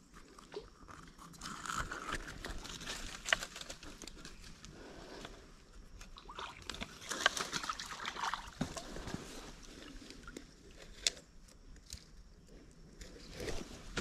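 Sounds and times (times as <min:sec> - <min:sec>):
wet splashy sounds: 0:06.2 - 0:08.9
rustling and scuffing: 0:13.2 - 0:14.0.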